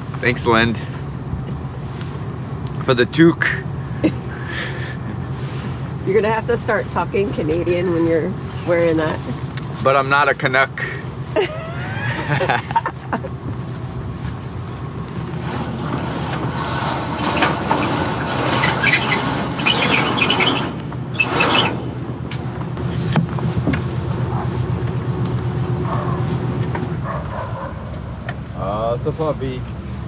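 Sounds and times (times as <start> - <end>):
steady low hum: 20.8 - 30.0.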